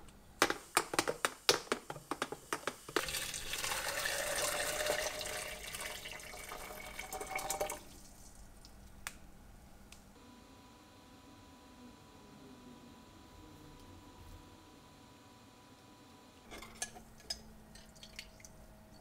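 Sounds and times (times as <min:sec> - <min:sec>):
water pouring into glass: 0:03.0 - 0:08.1.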